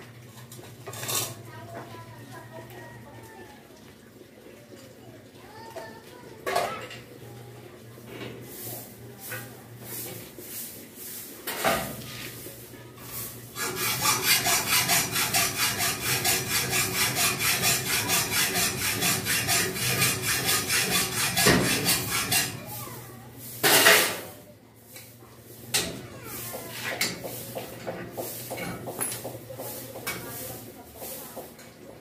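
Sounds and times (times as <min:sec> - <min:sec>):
loud metal scrape: 0:09.9 - 0:24.3
hacksaw cutting metal: 0:13.5 - 0:22.7.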